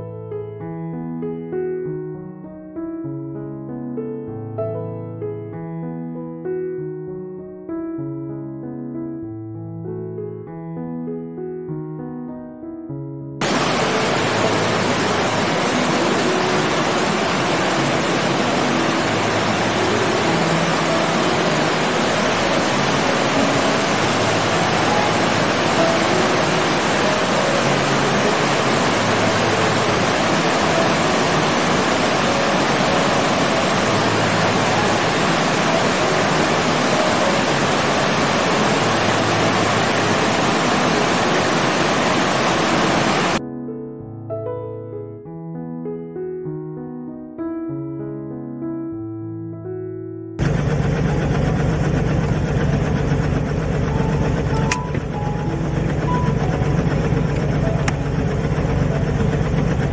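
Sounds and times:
water rushing over rocks: 0:13.4 - 0:43.4.

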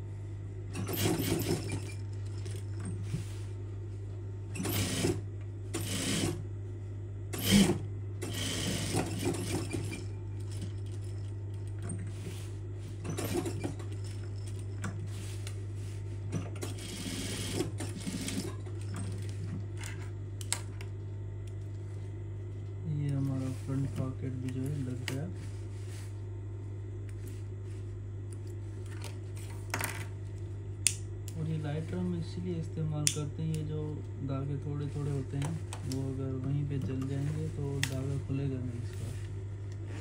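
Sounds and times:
sewing machine stitching: 0:00.7 - 0:02.0, 0:04.6 - 0:06.4, 0:07.3 - 0:10.8, 0:13.0 - 0:14.0, 0:16.4 - 0:19.2.

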